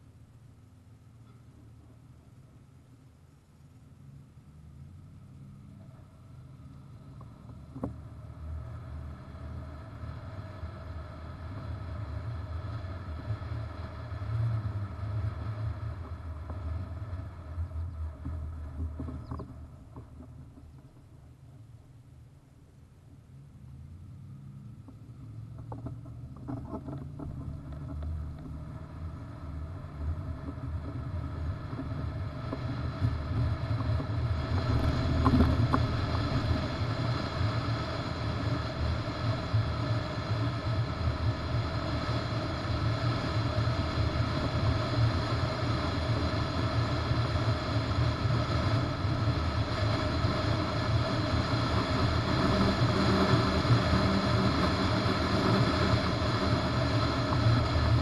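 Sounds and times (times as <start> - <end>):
road and trailer noise: 0.0 - 58.0
wind rushing over microphone: 25.3 - 58.0.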